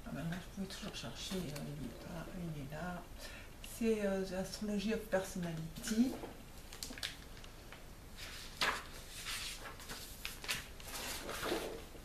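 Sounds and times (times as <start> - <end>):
paper pages rustling: 8.2 - 12.0.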